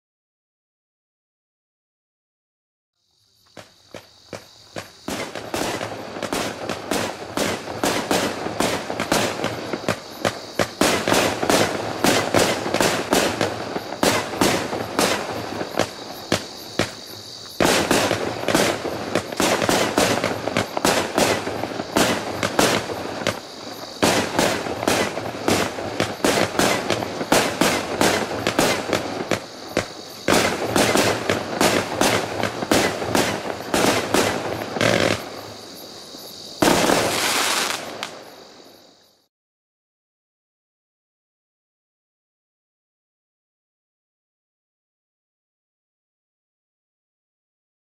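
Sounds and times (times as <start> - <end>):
fireworks launching and bursting: 3.4 - 39.0.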